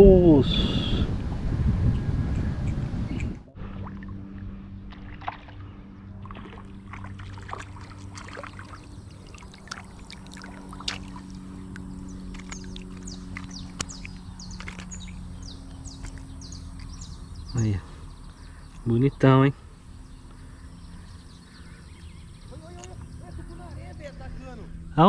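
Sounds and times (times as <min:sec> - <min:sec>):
low motor hum: 0:00.0 - 0:25.0
birds chirping: 0:01.8 - 0:25.0
water trickling and splashing: 0:03.6 - 0:17.3.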